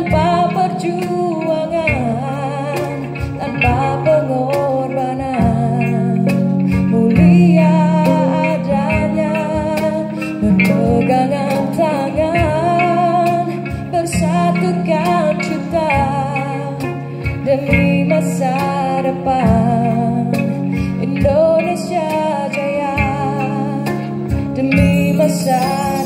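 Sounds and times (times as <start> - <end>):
cajon steady beat: 0.0 - 26.0
plucked electric zither: 0.0 - 26.0
woman singing: 0.0 - 26.0.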